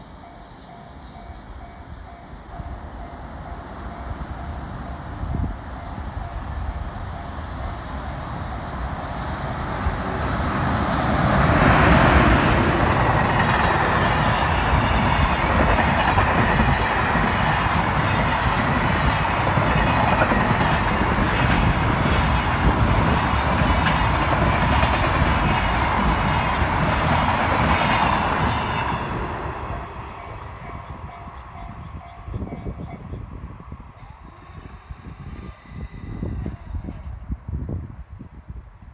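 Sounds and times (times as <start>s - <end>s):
freight train rumbling past: 0.0s - 38.0s
clickety-clack of train wheels: 10.6s - 32.7s.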